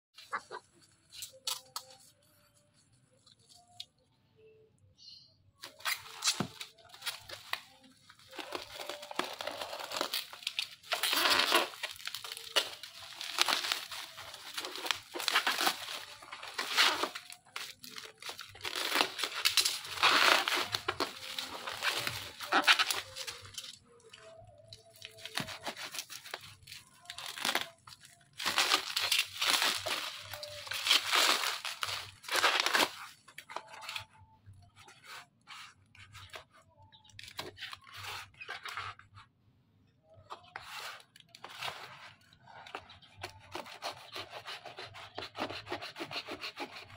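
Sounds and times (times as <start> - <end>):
bubble wrap crinkling and tearing: 5.6 - 39.2, 40.3 - 46.9
knife scraping cardboard: 42.7 - 46.9.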